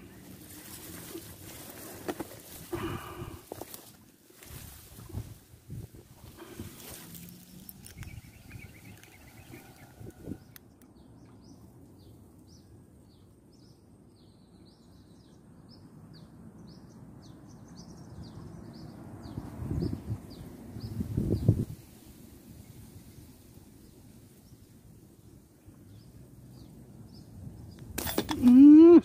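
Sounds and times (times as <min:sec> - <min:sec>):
grass rustling underfoot: 0:00.0 - 0:10.4
small bird chirping: 0:07.1 - 0:12.6.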